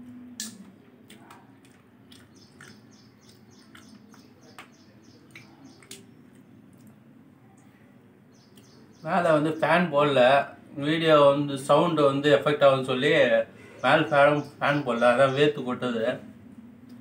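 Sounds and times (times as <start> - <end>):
person chewing: 0.4 - 4.4
lip smacks: 0.4 - 7.0
mouth clicks: 0.4 - 7.0.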